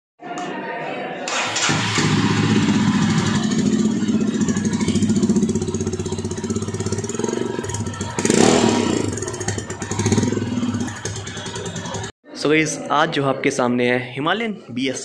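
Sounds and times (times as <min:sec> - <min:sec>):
motorcycle engine idling: 0:01.3 - 0:12.1.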